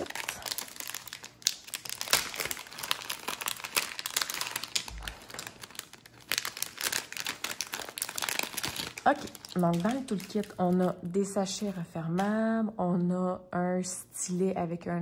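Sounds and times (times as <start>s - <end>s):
plastic packaging crinkling: 0.0s - 11.7s.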